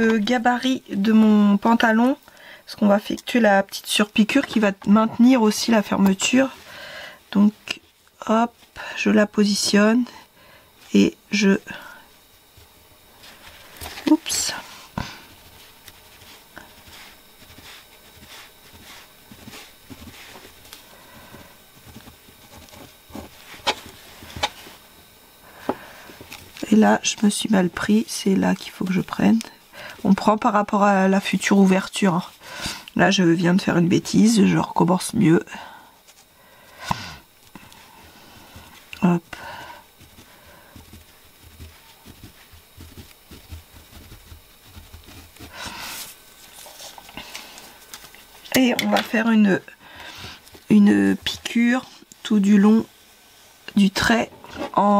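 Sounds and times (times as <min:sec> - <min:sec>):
fabric rustling: 0:12.5 - 0:24.9.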